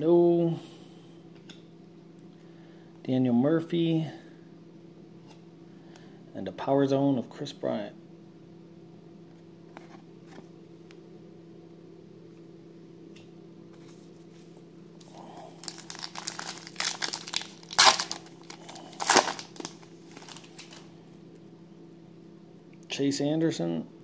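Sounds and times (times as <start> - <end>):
foil wrapper crinkling and tearing: 15.6 - 20.9.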